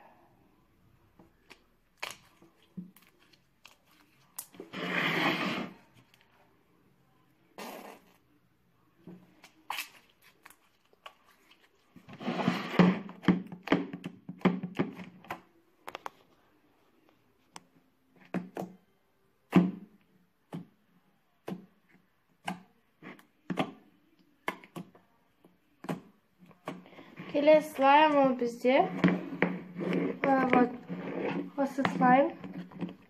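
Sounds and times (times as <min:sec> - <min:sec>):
slime squelching and popping: 0:01.3 - 0:04.7, 0:09.4 - 0:12.0.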